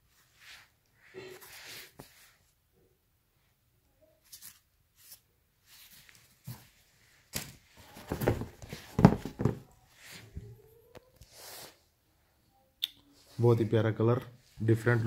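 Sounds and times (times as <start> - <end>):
sneaker handling rustles: 4.3 - 10.3.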